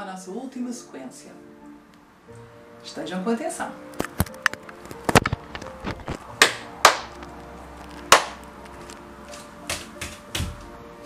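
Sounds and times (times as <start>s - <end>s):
palms slapping thighs: 8.0s - 8.4s, 9.3s - 10.8s
bare feet stamping on wooden floor: 9.3s - 10.7s.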